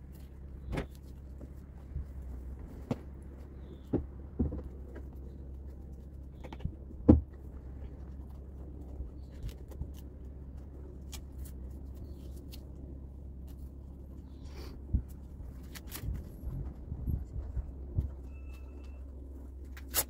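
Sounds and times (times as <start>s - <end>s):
steady low hum: 0.0s - 20.0s
knocks and thumps of hoof boots: 0.6s - 5.2s, 6.4s - 7.5s.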